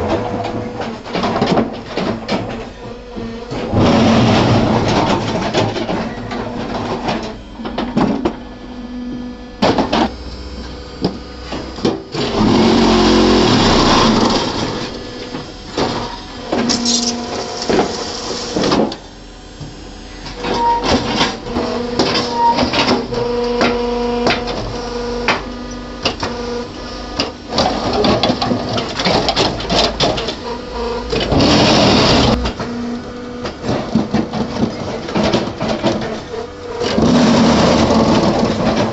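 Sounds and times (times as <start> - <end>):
machine motor and pump hum: 0.0 - 38.9
steel parts clanking: 15.4 - 18.4.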